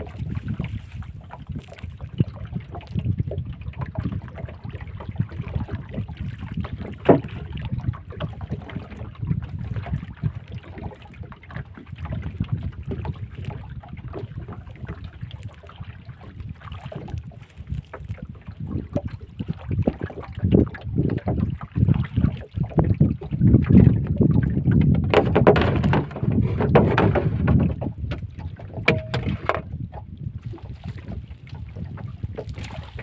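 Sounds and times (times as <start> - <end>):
water splashing around boat: 0.0 - 33.0
wind buffeting microphone: 0.0 - 33.0
small knocks: 24.8 - 29.7.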